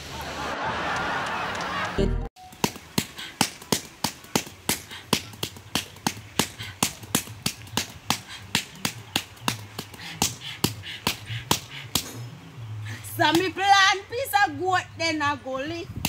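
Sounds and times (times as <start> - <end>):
hands slapping a sack: 2.4 - 12.2.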